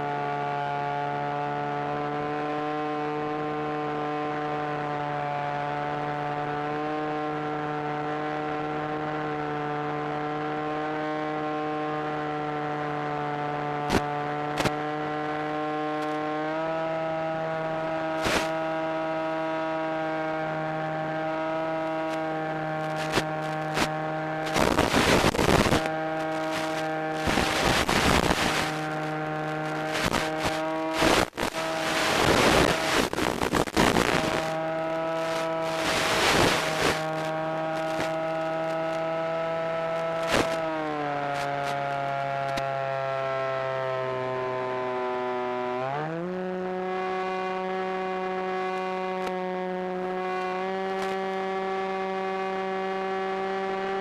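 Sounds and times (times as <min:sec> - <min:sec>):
electric motor and propeller drone: 0:00.0 - 0:54.0
radio static bursts: 0:18.2 - 0:18.5, 0:22.8 - 0:39.0, 0:40.2 - 0:40.6.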